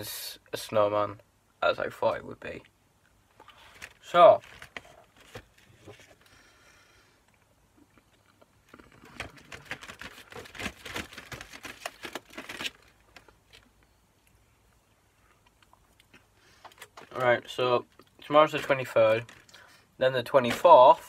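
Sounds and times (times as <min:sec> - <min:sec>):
packaging crinkling and crackling: 0:03.4 - 0:06.4, 0:08.1 - 0:13.9, 0:15.6 - 0:19.7.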